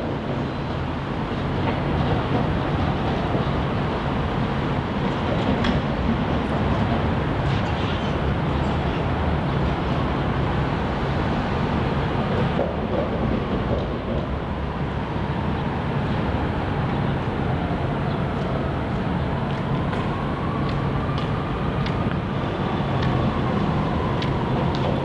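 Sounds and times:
city traffic rumble: 0.0 - 25.0.

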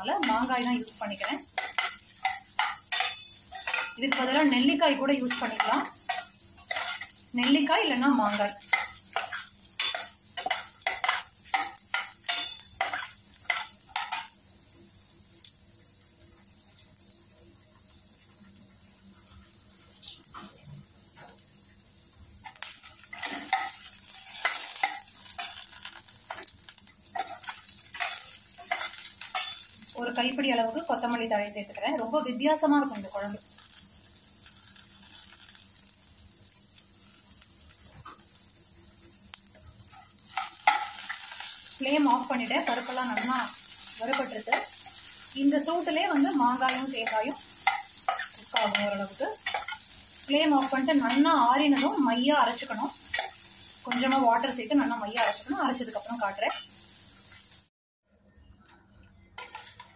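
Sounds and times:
faint sizzle: 0.0 - 59.9
spatula scraping steel pan: 5.2 - 14.2, 59.4 - 59.9.

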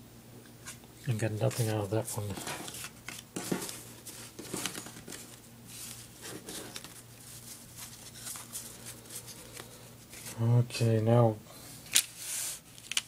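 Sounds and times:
cards and wrappers rustling: 1.2 - 10.4, 11.9 - 13.0
cards clicking and tapping: 1.5 - 5.4.

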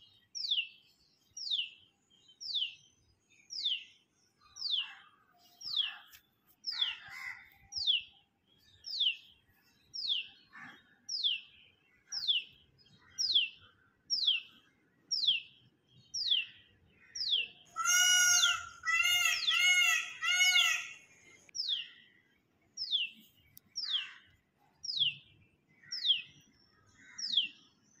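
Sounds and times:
bird arched calls: 17.2 - 21.2.

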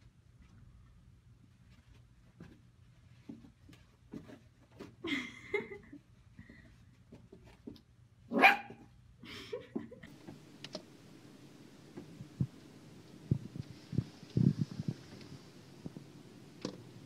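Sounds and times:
puppy barking: 8.3 - 8.8.

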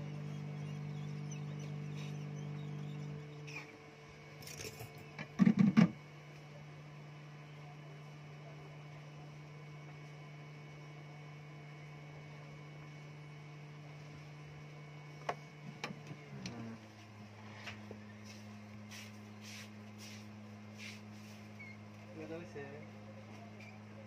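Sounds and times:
electrical hum: 0.0 - 24.0.

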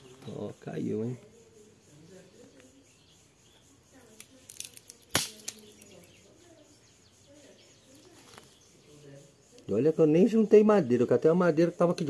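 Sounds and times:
twigs crackling and snapping: 4.1 - 6.1, 7.9 - 8.6.

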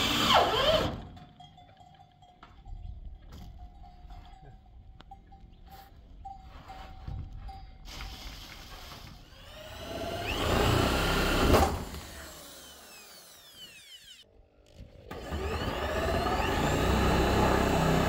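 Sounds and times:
electric drill whining: 0.0 - 1.0, 9.2 - 18.0.

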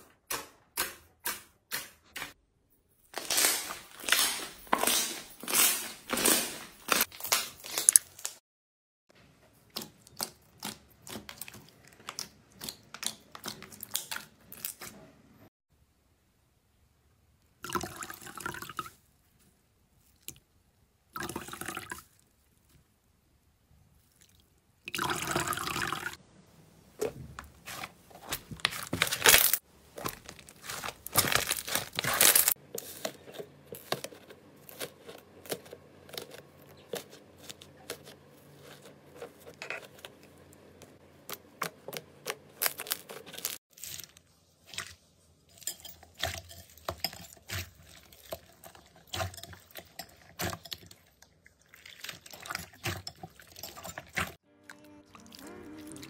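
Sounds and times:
wet sponge squeezing: 3.1 - 8.4, 27.5 - 45.2, 46.5 - 54.4.

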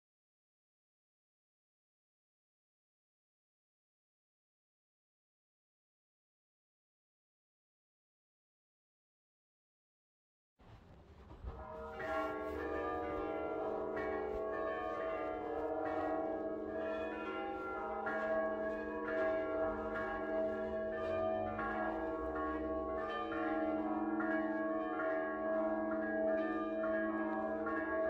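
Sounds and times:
church bells ringing: 11.5 - 28.0.

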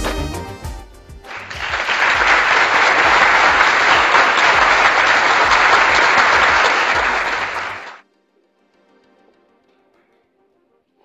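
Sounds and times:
crowd clapping: 1.3 - 8.0.

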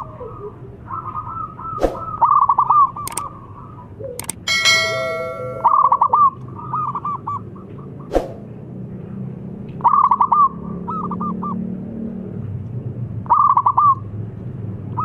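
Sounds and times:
short clicks: 3.0 - 3.3, 4.2 - 4.5
bell-like ding: 4.4 - 6.2.

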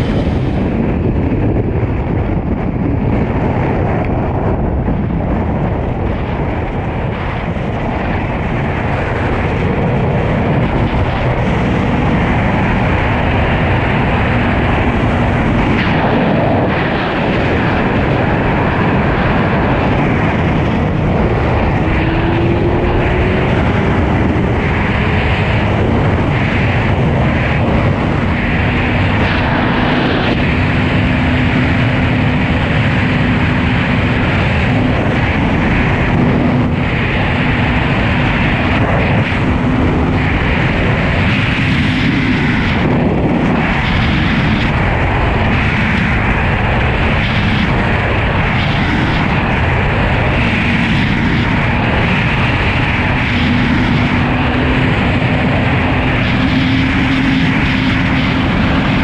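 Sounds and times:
motorcycle engine drone: 0.0 - 59.0
wind rush over microphone: 0.0 - 59.0.

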